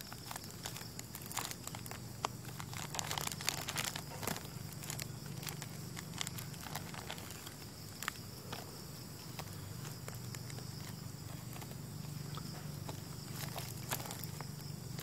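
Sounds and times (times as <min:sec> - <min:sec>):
plastic crinkling and rustling: 0:00.0 - 0:15.0.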